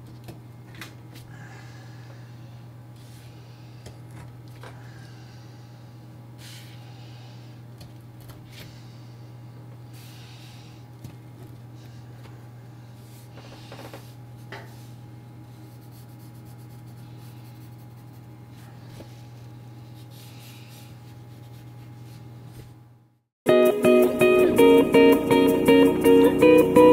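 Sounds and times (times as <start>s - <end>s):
steady low hum: 0.0s - 23.2s
pencil scratching on paper: 15.6s - 18.4s, 19.9s - 22.2s.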